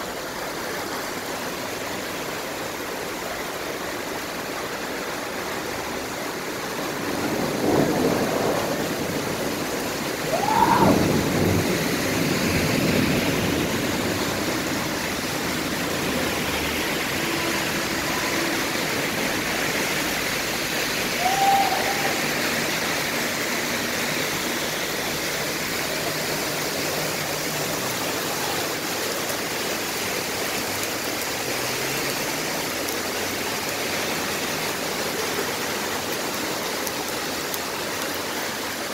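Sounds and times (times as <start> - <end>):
heavy rain on wet street: 0.0 - 38.9.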